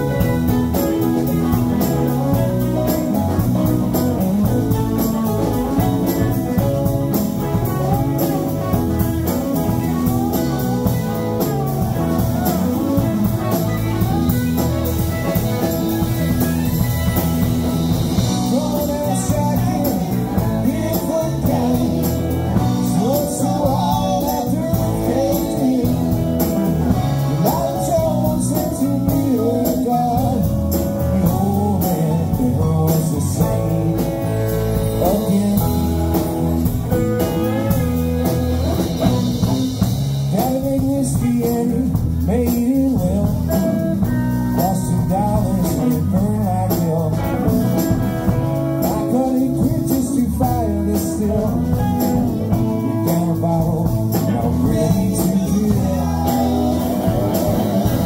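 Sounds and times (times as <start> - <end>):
drum beat: 0.0 - 28.2, 34.8 - 41.8, 50.5 - 58.0
bass guitar: 0.0 - 58.0
electric guitars: 0.0 - 58.0
electric keyboard: 0.0 - 58.0.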